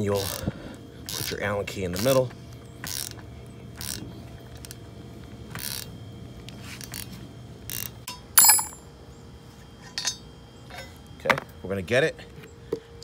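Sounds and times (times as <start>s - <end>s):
ringing metallic clink: 8.1s - 8.9s, 9.9s - 10.2s.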